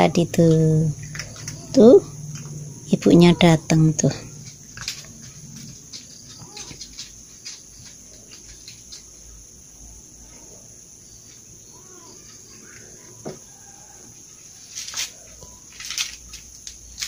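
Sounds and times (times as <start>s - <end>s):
insects droning: 0.0s - 17.0s
cats chewing food: 0.9s - 2.8s, 4.1s - 9.6s.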